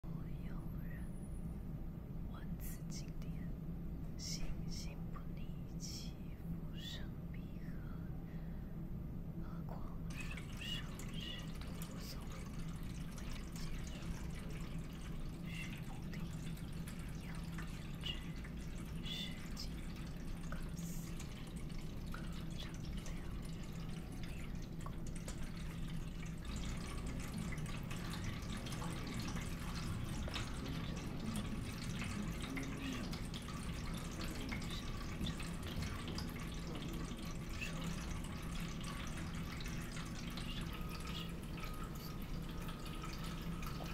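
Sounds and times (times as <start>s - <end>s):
steady low hum: 0.0s - 43.9s
faint drip-like plinks: 9.5s - 43.9s.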